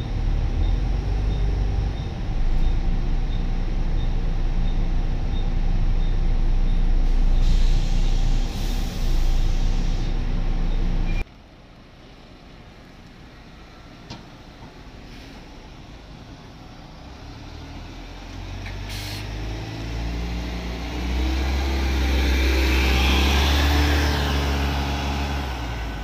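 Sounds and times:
bus diesel engine accelerating: 0.0s - 26.0s
brief hiss: 7.1s - 10.2s, 18.8s - 19.3s.

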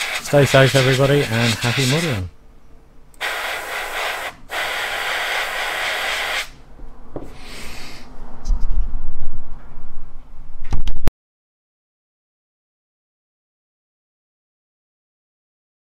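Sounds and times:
spray hissing: 0.0s - 2.3s, 3.2s - 6.6s, 7.4s - 8.0s.

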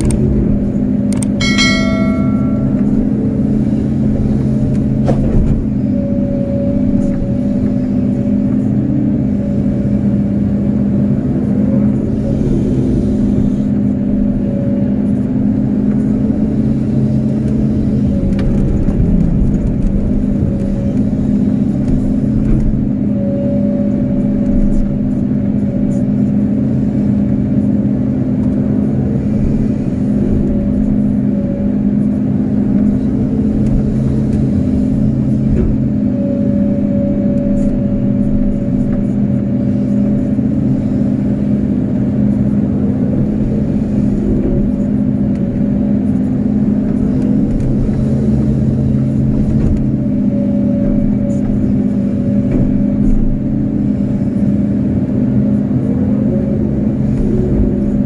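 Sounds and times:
excavator diesel engine running: 0.0s - 58.0s
high whine: 1.2s - 4.2s.

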